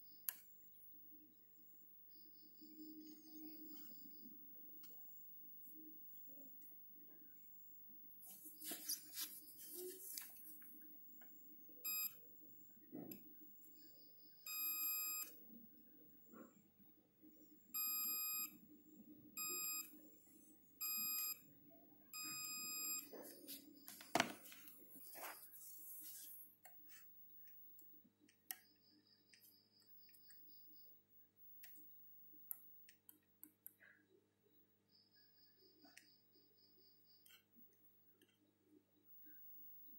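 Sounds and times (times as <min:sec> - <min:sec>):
scraping noises: 0:08.2 - 0:10.6
multimeter continuity beeps: 0:11.7 - 0:12.3, 0:12.9 - 0:15.6, 0:17.8 - 0:18.6, 0:19.4 - 0:20.0, 0:20.8 - 0:21.5, 0:22.1 - 0:24.0.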